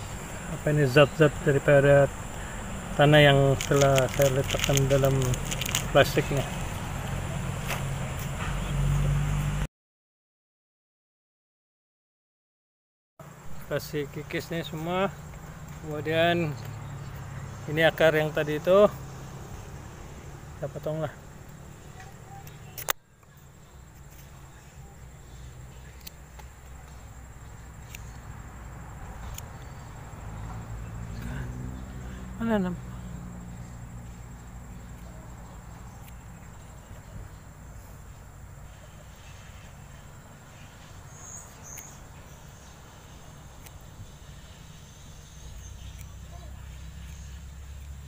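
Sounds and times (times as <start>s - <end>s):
insects chirring: 0.0s - 9.6s, 13.2s - 48.0s
sharp click: 22.4s - 23.0s, 41.6s - 42.0s.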